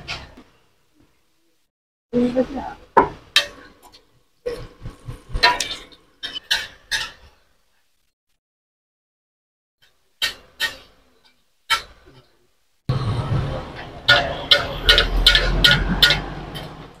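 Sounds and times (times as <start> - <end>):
metal utensils clattering on pans: 5.3 - 7.5, 10.2 - 12.3, 13.7 - 17.0.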